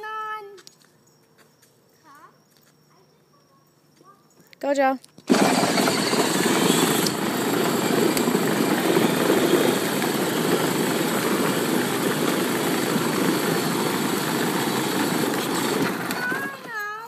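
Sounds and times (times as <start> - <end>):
plastic toy wheels rumbling on asphalt: 5.2 - 17.0
electric drive motor running: 5.3 - 16.7.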